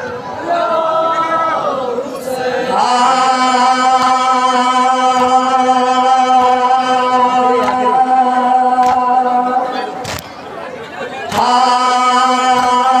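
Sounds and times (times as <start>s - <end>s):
man singing into microphone: 2.6s - 10.0s, 11.3s - 13.0s.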